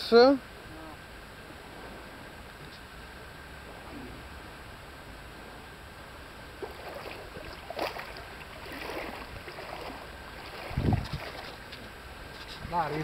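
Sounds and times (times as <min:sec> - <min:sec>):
seawater splashing and lapping: 0:05.7 - 0:13.0.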